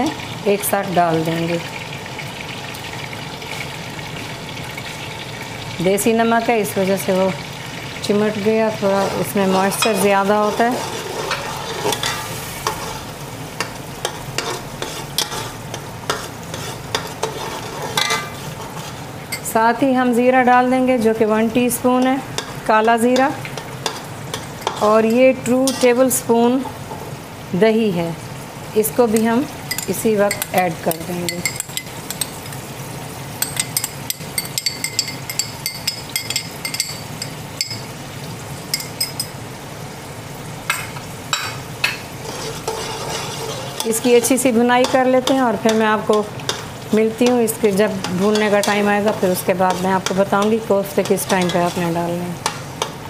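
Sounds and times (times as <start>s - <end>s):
paste sizzling in oil: 0.1s - 53.0s
metal spoon scraping pot: 8.8s - 13.1s, 14.4s - 19.5s, 29.7s - 32.4s, 41.4s - 46.6s, 47.2s - 52.6s
spoon clinking against pot: 29.2s - 32.6s, 33.4s - 37.9s, 38.7s - 39.4s.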